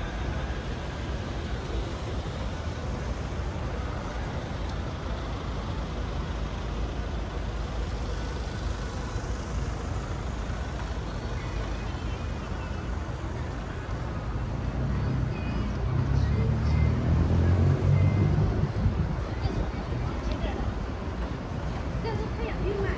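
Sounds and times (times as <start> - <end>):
road traffic rumble: 0.0 - 22.9.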